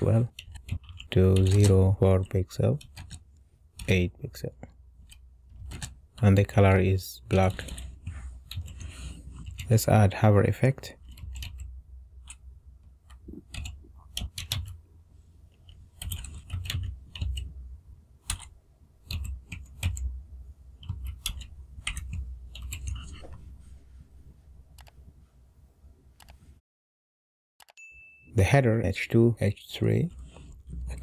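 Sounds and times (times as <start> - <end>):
steady low hum: 0.0 - 26.2
keyboard typing: 0.1 - 4.0, 11.0 - 12.4, 13.0 - 14.8, 15.5 - 17.5, 18.2 - 20.1, 20.8 - 23.2, 24.8 - 25.0.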